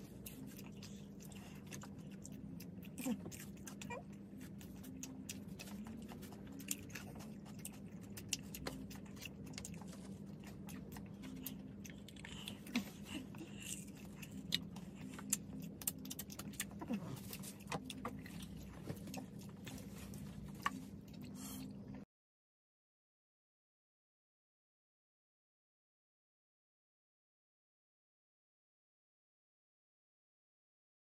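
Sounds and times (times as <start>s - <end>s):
chewing and biting fries: 0.0s - 22.0s
low steady hum: 0.0s - 22.1s.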